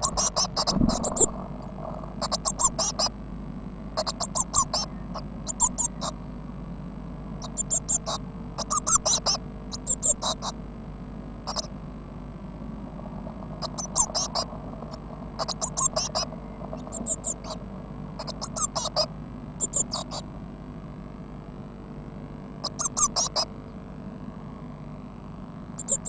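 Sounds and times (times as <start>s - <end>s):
chicks cheeping: 0.0s - 1.4s, 2.2s - 3.1s, 4.0s - 6.2s, 7.4s - 10.6s, 11.5s - 11.7s, 13.6s - 17.6s, 18.2s - 20.2s, 22.6s - 23.5s, 25.8s - 26.0s
steady low hum: 0.0s - 26.0s.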